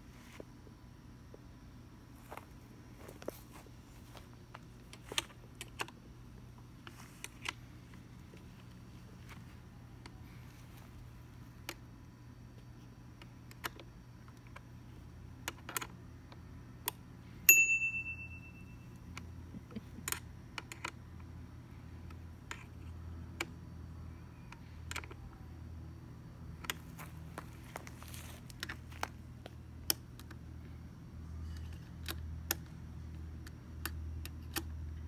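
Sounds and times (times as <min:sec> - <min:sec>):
hex key clicking on screws: 0:15.4 - 0:17.0, 0:20.0 - 0:21.3, 0:31.5 - 0:35.0
sharp metallic ding: 0:17.5 - 0:18.9.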